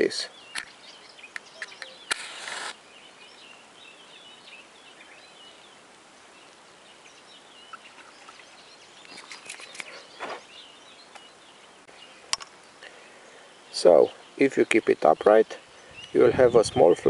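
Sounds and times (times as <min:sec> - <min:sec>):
small birds chirping: 0:00.0 - 0:17.0
match flaring with hiss: 0:02.0 - 0:02.8
brief rustle: 0:09.0 - 0:10.5.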